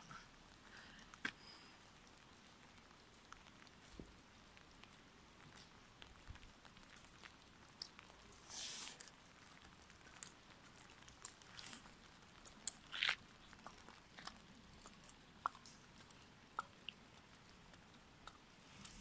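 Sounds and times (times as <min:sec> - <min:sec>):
wet outdoor background: 0:00.0 - 0:19.0.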